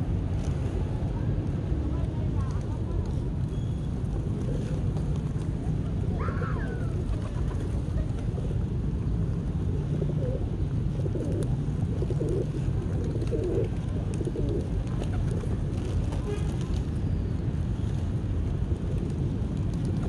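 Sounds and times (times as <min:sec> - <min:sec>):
pigeons cooing: 0:09.7 - 0:15.9.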